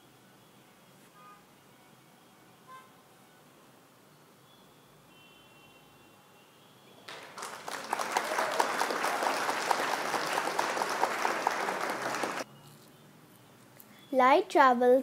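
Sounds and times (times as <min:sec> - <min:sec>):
crowd clapping: 0:07.0 - 0:12.5.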